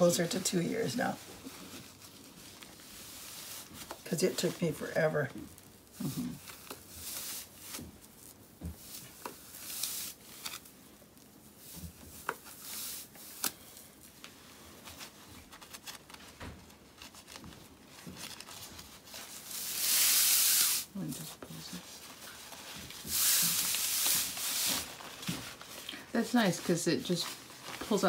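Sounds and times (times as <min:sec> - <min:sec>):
fabric rustling and swishing: 0:00.0 - 0:10.6, 0:16.8 - 0:28.0.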